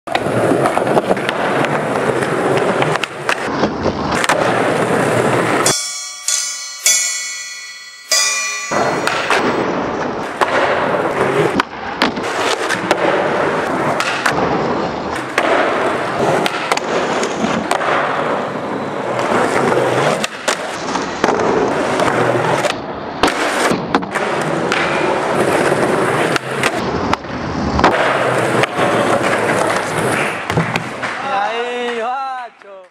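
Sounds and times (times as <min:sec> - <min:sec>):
skateboard pops: 0:00.1 - 0:04.7, 0:26.3 - 0:31.2
skateboard trucks grinding ledge: 0:00.1 - 0:05.6, 0:09.8 - 0:31.2
skateboard wheels rolling on concrete: 0:00.1 - 0:05.7, 0:09.6 - 0:32.9
skateboard landing knocks: 0:30.5 - 0:31.2.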